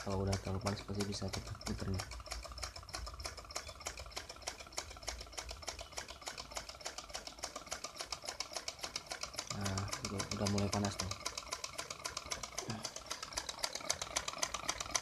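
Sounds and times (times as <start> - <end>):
small engine clicking: 0.0 - 15.0.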